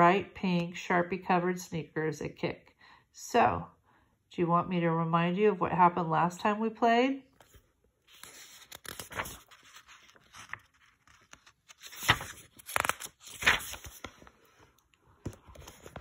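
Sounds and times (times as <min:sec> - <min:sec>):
book pages turning: 0:07.3 - 0:16.0.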